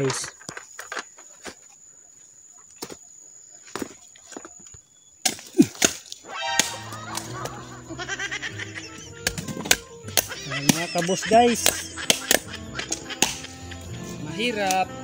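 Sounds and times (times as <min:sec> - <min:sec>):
machete chopping coconuts: 0:05.2 - 0:07.6, 0:09.2 - 0:13.6
background music: 0:06.3 - 0:15.0.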